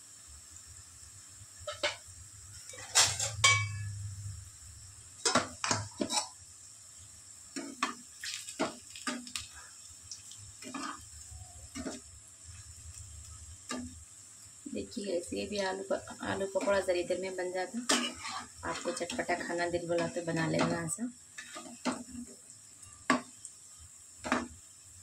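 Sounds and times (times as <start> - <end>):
food frying in oil: 0.0 - 25.0
metal utensil scraping a wok: 1.6 - 4.1, 10.6 - 12.1, 17.8 - 22.2.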